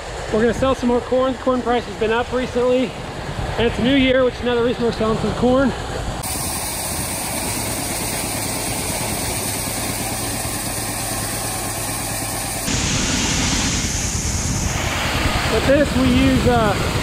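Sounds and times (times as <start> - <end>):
grain auger carrying corn: 6.2 - 17.0
tractor engine running: 6.2 - 17.0.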